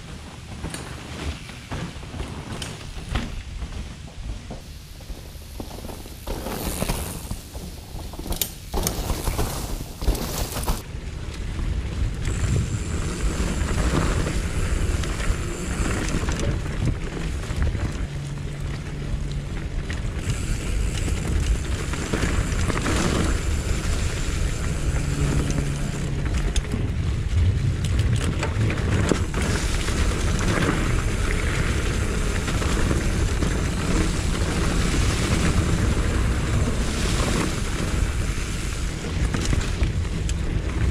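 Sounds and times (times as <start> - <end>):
tyre rumble: 0.0 - 10.8, 21.2 - 38.3
bike rattling over bumps: 0.0 - 40.9
wind rushing over microphone: 0.0 - 40.9.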